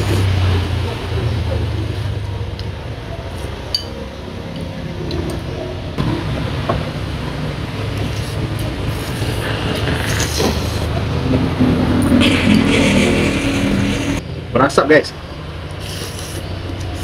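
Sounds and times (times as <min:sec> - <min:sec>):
steady low hum: 0:05.8 - 0:14.5
slurping noodles: 0:08.0 - 0:14.2, 0:15.7 - 0:17.0.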